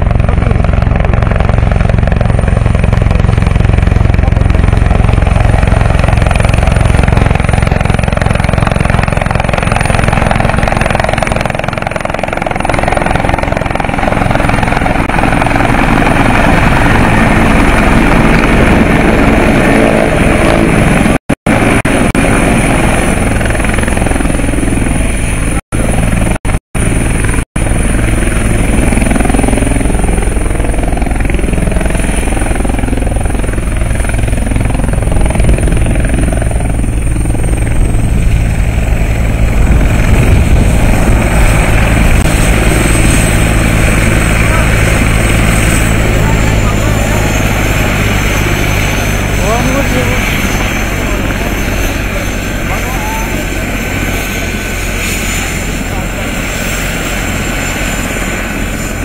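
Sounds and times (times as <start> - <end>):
helicopter rotor beat: 0.0 - 59.0
high turbine whine: 0.0 - 59.0.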